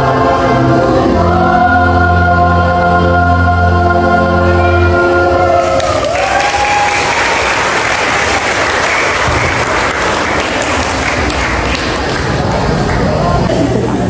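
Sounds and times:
choir holding a chord: 0.0 - 8.6
audience applause: 5.6 - 14.0.

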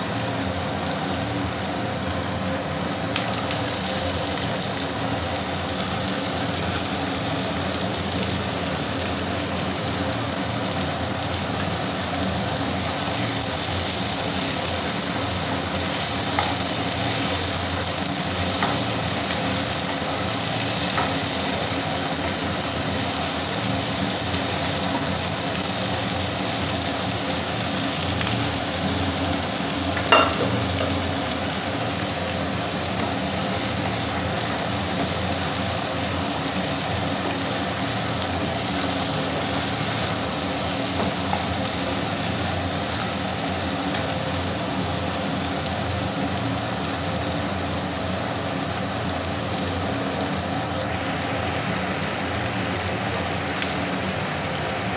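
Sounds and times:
food sizzling in oil: 0.0 - 54.9
spatula knocking on pan: 30.0 - 31.0.

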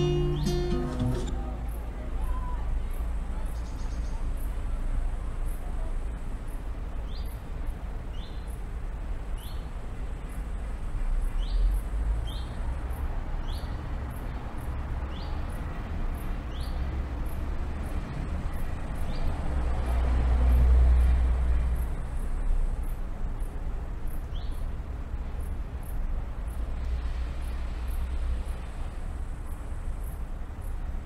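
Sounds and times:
small birds chirping: 0.0 - 4.8, 5.4 - 8.7, 9.3 - 10.4, 11.3 - 17.4, 21.8 - 24.8.

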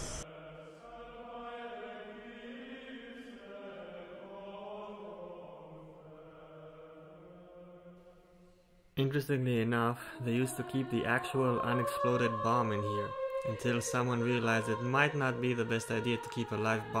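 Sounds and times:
choral chant: 0.0 - 8.6, 9.7 - 17.0.

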